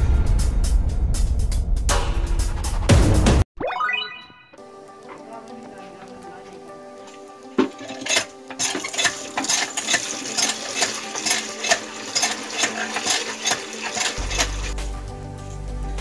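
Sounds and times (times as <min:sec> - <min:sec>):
hand pump metal clanks: 0:07.0 - 0:14.8
water gushing into plastic bucket: 0:07.6 - 0:14.8.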